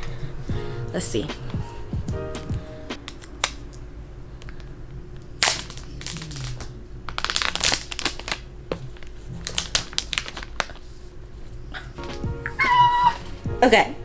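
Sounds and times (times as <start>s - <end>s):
plastic wrapping crinkling and tearing: 5.4s - 11.0s.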